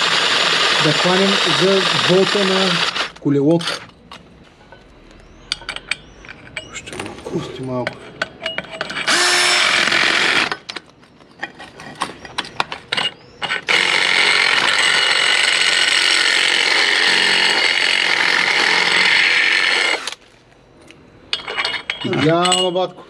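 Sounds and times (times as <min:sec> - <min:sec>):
cordless drill boring metal: 0:00.0 - 0:03.8, 0:08.9 - 0:10.6, 0:13.0 - 0:20.2.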